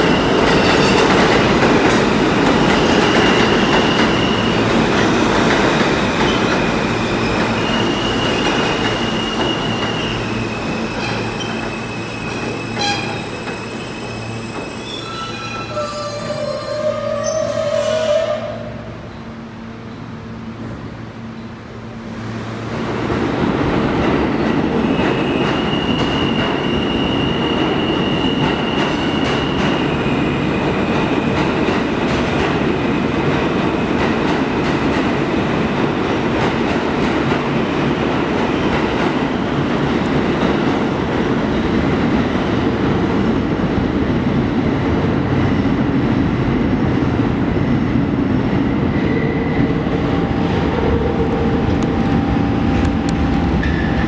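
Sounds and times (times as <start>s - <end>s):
train wheels rumbling on rail: 0.0s - 54.0s
high wheel squeal: 6.3s - 18.6s
rail clicks: 49.8s - 54.0s.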